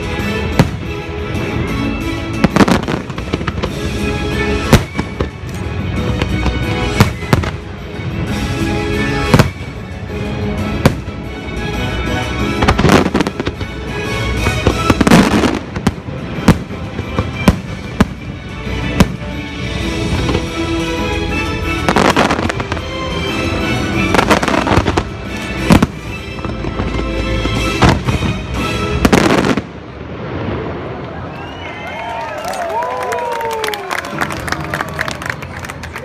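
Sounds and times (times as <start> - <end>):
loud show music: 0.0 - 29.6
fireworks bursting: 2.3 - 11.3, 12.4 - 19.4, 20.0 - 31.6.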